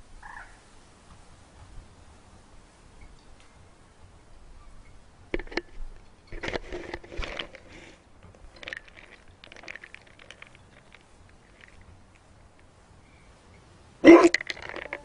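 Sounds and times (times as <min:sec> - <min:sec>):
camera handling knocks and scraping: 0:05.4 - 0:10.5.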